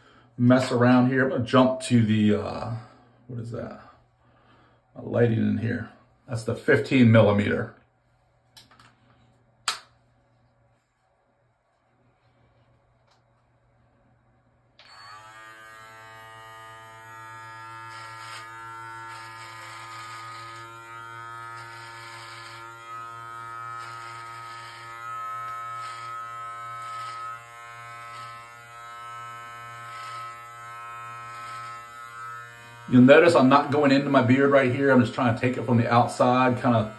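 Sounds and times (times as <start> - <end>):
beard trimmer buzzing: 14.8 - 36.9.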